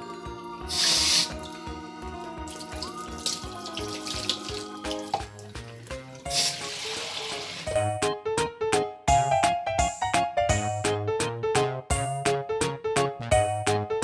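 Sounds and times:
background music: 0.0s - 14.0s
water splashing into metal sink: 2.4s - 7.7s.

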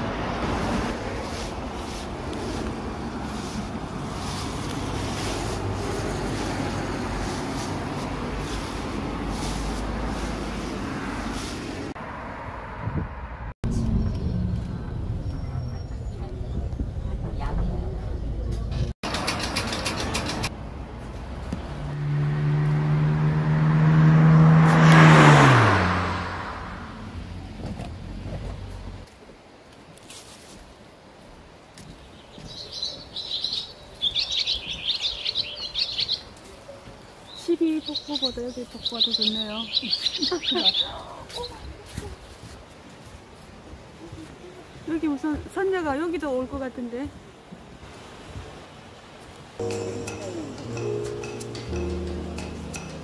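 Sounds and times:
street traffic rumble: 0.0s - 53.0s
footsteps through dry leaves: 0.6s - 11.9s, 29.8s - 31.2s, 39.8s - 44.4s
vehicle driving past: 21.7s - 29.0s.

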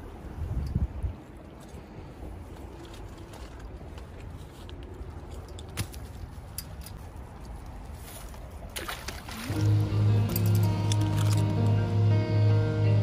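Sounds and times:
wind rumble on microphone: 0.0s - 8.7s.

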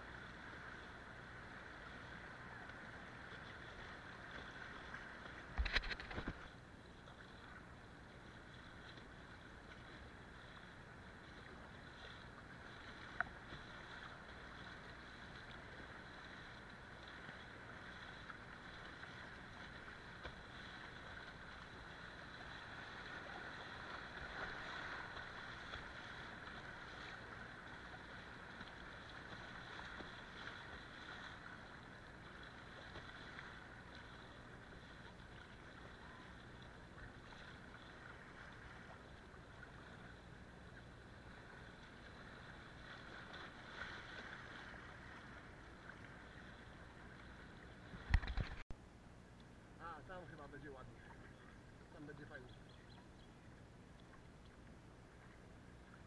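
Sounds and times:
river water rushing and splashing: 10.8s - 36.4s.

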